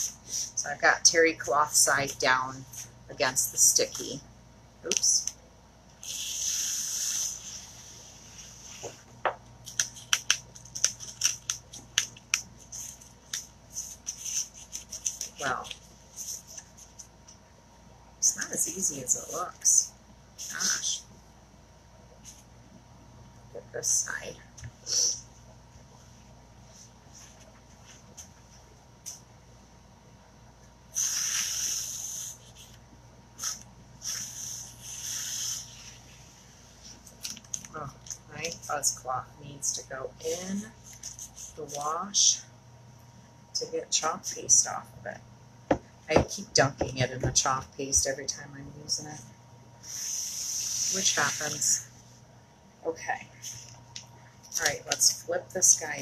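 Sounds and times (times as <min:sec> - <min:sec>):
crackling pulls of adhesive: 0:09.6 - 0:15.4.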